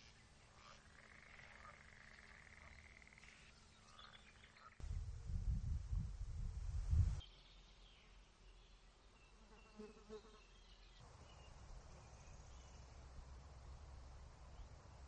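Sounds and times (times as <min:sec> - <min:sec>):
faint bird chirps: 0:00.0 - 0:04.8.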